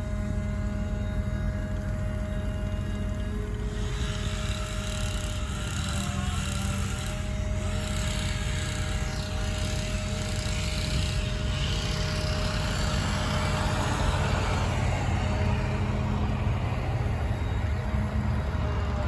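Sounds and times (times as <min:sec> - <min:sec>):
truck engine droning: 0:00.0 - 0:19.0
broad rushing noise: 0:09.9 - 0:19.0.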